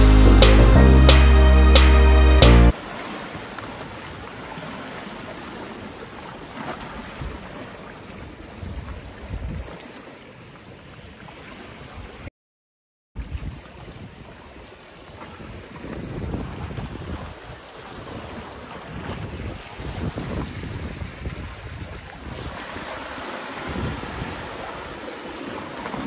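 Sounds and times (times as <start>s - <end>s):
music: 0.0s - 2.7s
waves washing over rocks: 2.7s - 7.9s, 15.4s - 26.0s
wind rumbling on microphone: 8.6s - 9.8s, 13.2s - 14.5s, 15.3s - 25.0s.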